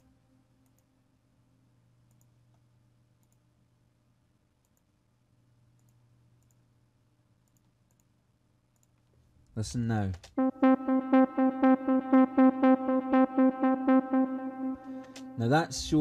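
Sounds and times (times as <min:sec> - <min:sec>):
faint steady hum: 0:00.0 - 0:09.8
computer mouse clicks: 0:02.1 - 0:02.6, 0:03.2 - 0:03.5, 0:04.6 - 0:04.9, 0:05.8 - 0:06.6, 0:07.4 - 0:08.1, 0:08.7 - 0:09.1.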